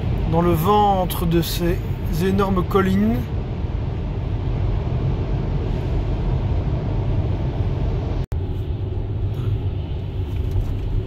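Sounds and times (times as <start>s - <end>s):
road and tyre noise in car: 0.0s - 11.0s.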